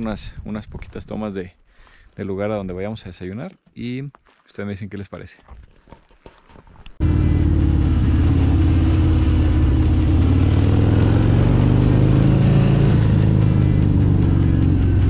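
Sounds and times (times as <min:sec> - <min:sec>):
motorcycle engine running: 0:07.0 - 0:15.0
background music: 0:07.1 - 0:15.0.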